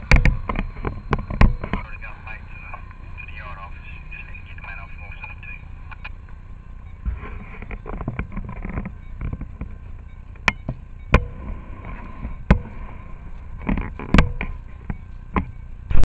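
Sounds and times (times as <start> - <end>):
low rumble with scuffing: 7.0 - 7.8.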